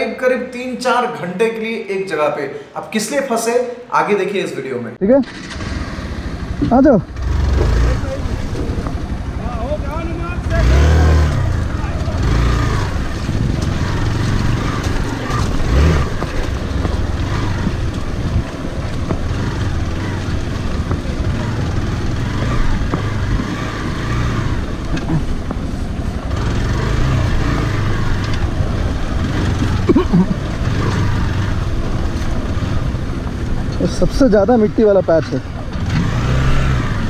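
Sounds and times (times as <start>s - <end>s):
motorcycle engine at low revs: 5.2s - 37.0s
knocks from rough ground: 13.1s - 24.2s.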